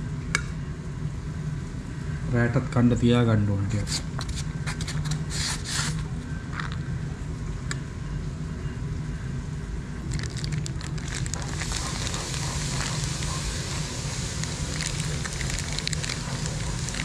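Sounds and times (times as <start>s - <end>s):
steady low hum: 0.0s - 17.0s
crackly rustle: 10.1s - 17.0s.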